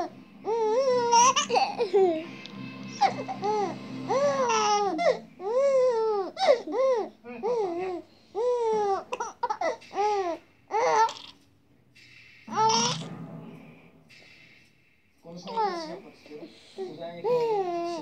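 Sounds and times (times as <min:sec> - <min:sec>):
baby babbling and cooing: 0:04.2 - 0:11.4, 0:17.2 - 0:18.0.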